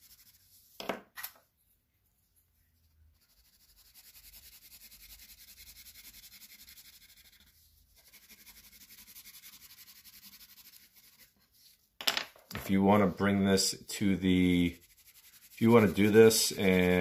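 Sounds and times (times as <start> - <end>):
crayon scribbling on paper: 3.2 - 11.5, 14.3 - 17.0.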